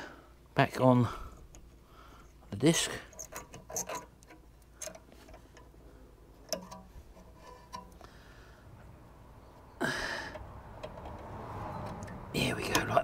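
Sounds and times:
metallic clicks and taps: 3.1 - 5.7, 6.4 - 8.1, 10.3 - 13.0.

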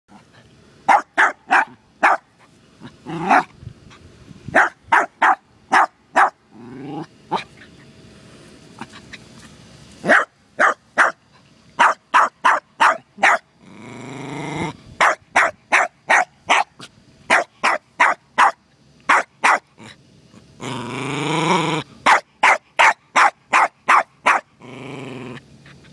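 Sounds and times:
dog barking: 0.9 - 2.3, 4.5 - 6.4, 10.0 - 11.2, 11.8 - 13.4, 15.0 - 19.7, 22.0 - 24.5
dog yelping: 0.9 - 2.3, 4.6 - 7.7, 10.0 - 11.2, 11.8 - 13.4, 15.0 - 19.7, 22.1 - 24.5
dog growling: 2.8 - 3.5, 6.5 - 7.6, 13.6 - 14.8, 19.8 - 21.8, 24.6 - 25.5.

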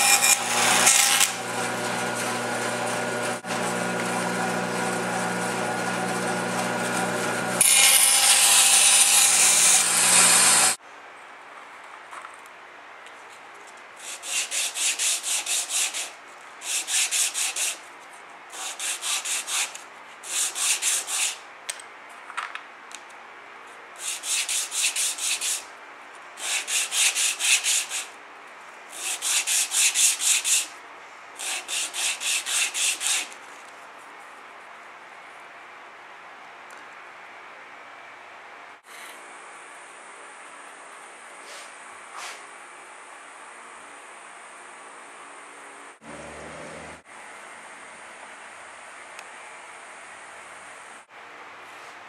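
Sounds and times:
wood rubbed on sandpaper: 14.0 - 17.8, 18.6 - 21.4, 24.0 - 25.7, 26.4 - 28.1, 28.9 - 30.7, 31.4 - 33.4.

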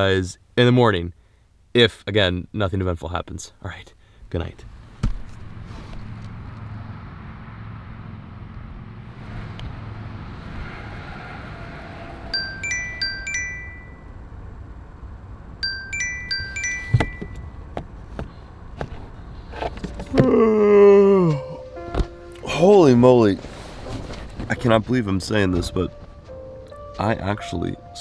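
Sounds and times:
phone timer alarm chime: 12.4 - 14.1, 15.6 - 17.6.

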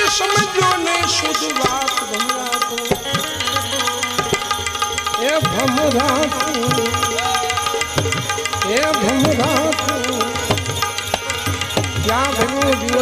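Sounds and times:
harmonium chords: 0.0 - 13.0
man singing: 0.0 - 13.0.

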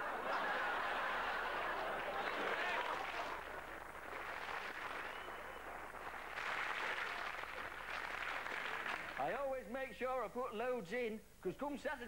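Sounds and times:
audience laughing: 0.0 - 3.4.

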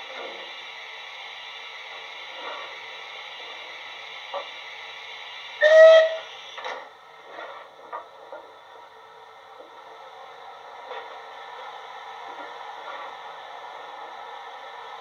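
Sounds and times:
steam hiss: 0.0 - 15.0
short whistle blast: 5.6 - 6.3.

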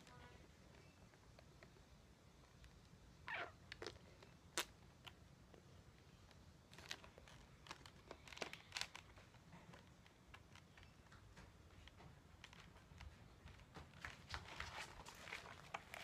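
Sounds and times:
faint clicks and rustles: 3.7 - 16.0.

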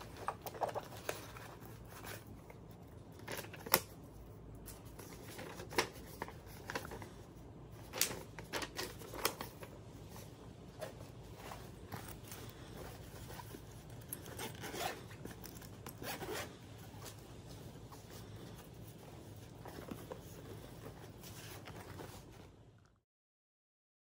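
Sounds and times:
canvas bag rustling: 7.8 - 22.7
backpack zipper: 14.2 - 16.7.

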